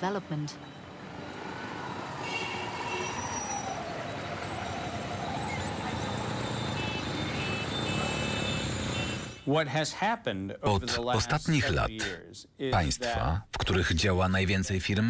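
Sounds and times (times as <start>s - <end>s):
road traffic rushing: 0.0s - 9.5s.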